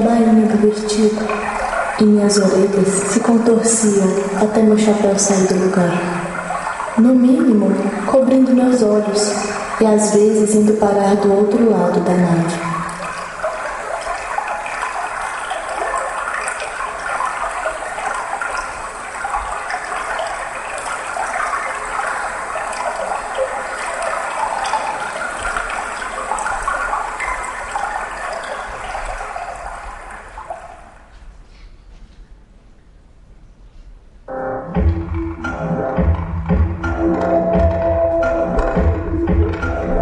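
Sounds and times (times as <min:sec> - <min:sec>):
gushing water: 0:00.0 - 0:31.1.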